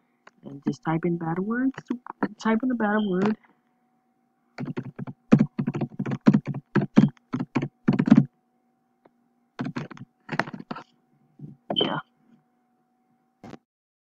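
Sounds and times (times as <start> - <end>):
computer keyboard typing: 4.6 - 8.3, 9.6 - 10.8.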